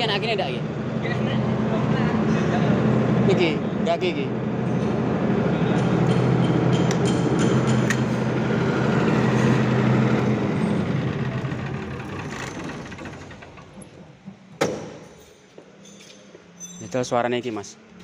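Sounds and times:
diesel generator drone: 0:00.0 - 0:14.4.

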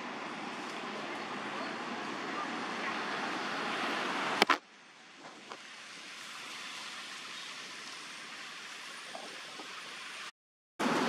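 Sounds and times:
outdoor background hiss: 0:00.0 - 0:11.0.

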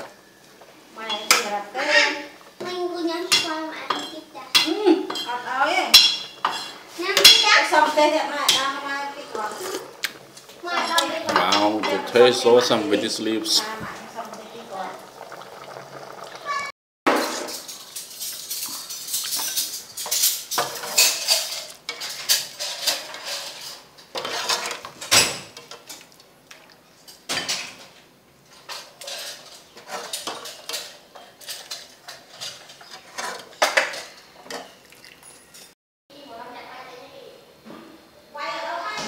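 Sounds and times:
ladle clinking and scraping pot: 0:03.3 - 0:14.8, 0:17.1 - 0:26.1, 0:28.5 - 0:35.7.

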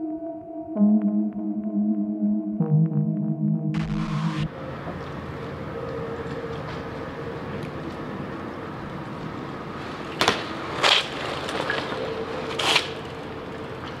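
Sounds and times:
bike clattering on stone paving: 0:09.8 - 0:14.0.

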